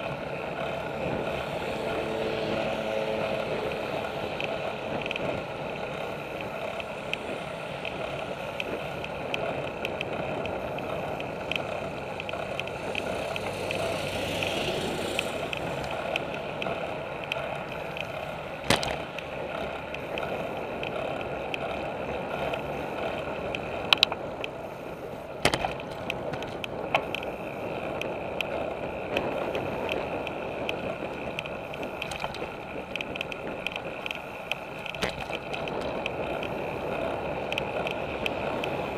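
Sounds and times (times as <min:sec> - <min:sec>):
bicycle tyres rolling on pavement: 0:00.0 - 0:38.9
bicycle frame rattle: 0:15.2 - 0:38.9.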